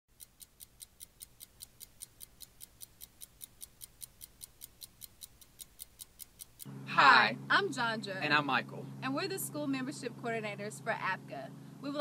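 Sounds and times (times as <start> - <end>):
clock ticking: 0.1 - 6.7.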